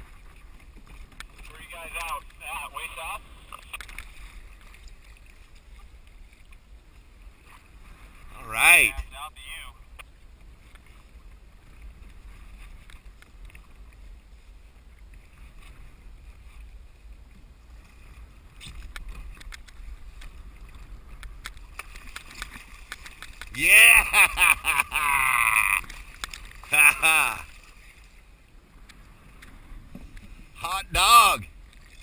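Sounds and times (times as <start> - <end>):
low wind: 0.0 - 32.0
water around kayak: 0.0 - 32.0
man's loud voice: 23.6 - 25.8, 26.8 - 27.4, 30.6 - 31.5.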